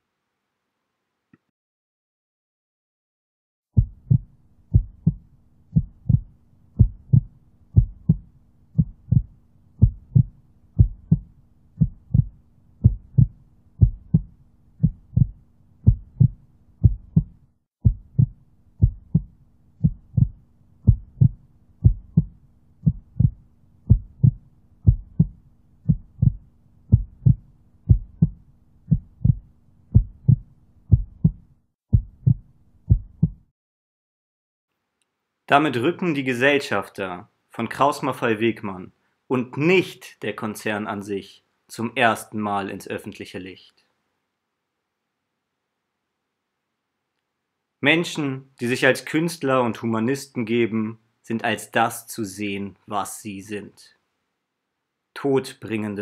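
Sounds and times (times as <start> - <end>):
faint steady hum: 3.8 - 33.4
low thumping beat: 3.8 - 33.5.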